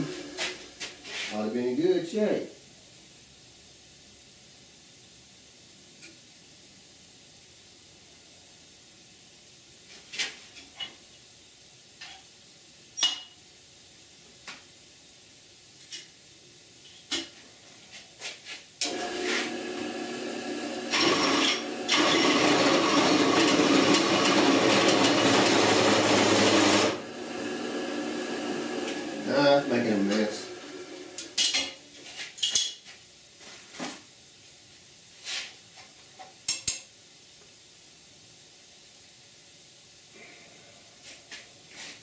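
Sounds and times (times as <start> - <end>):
drill press motor running: 18.8 - 31.3
hole saw cutting steel: 20.9 - 31.3.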